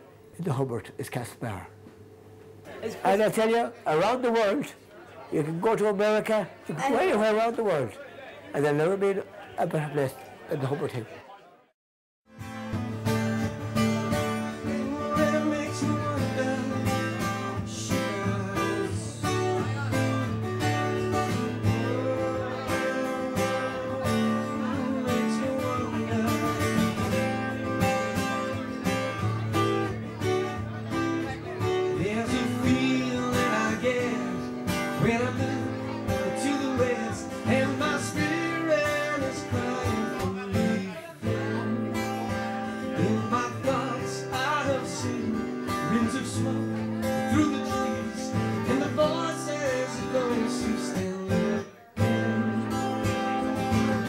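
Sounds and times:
fingerpicked acoustic guitar: 12.3 - 54.0
man singing into microphone: 14.4 - 19.9, 21.2 - 27.4, 31.6 - 54.0.

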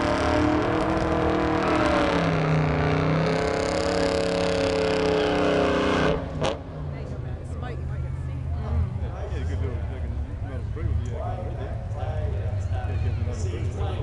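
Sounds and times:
car engine running hard: 0.0 - 14.0.

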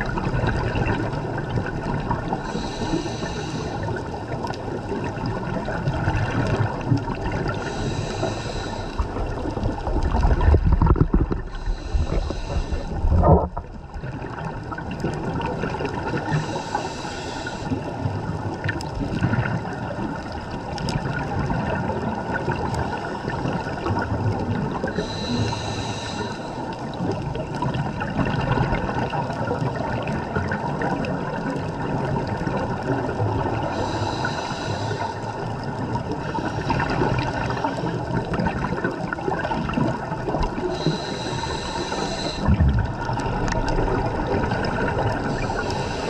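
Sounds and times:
underwater water noise: 0.0 - 46.0
regulator hissing inhalation: 2.4 - 4.0, 7.6 - 9.0, 11.5 - 13.1, 16.3 - 17.8, 25.0 - 26.7, 33.7 - 35.2, 40.6 - 42.5, 45.2 - 46.0
bubbling exhalations: 9.0 - 14.4, 36.7 - 46.0.

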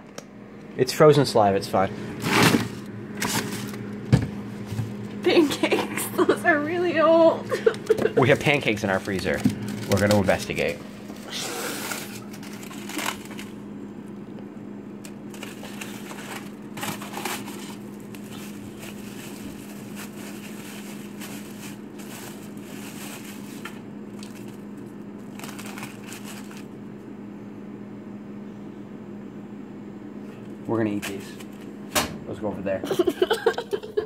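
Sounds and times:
steady low hum: 0.0 - 34.0
foil and plastic bag crinkling: 8.2 - 13.6, 15.0 - 26.8.

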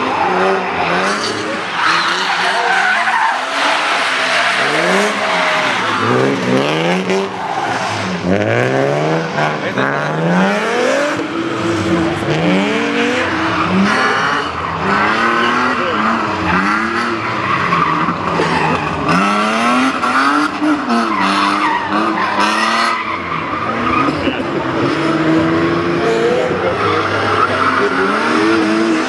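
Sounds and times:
tyres squealing on wet tarmac: 0.0 - 8.2, 26.6 - 29.0
race car engines revving: 0.0 - 29.0.

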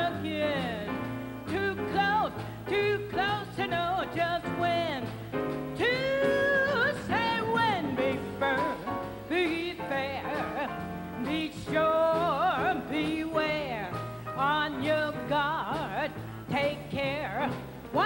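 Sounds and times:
drums: 0.0 - 18.0
walking double bass: 0.0 - 18.0
woman scat singing: 5.8 - 13.8.

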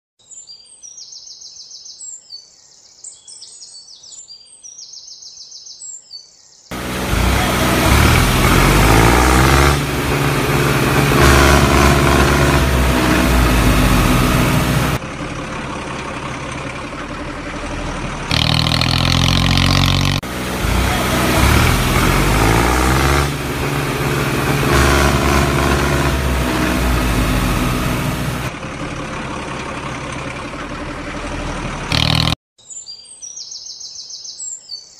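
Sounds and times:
heavy truck engine revving: 6.7 - 32.4.

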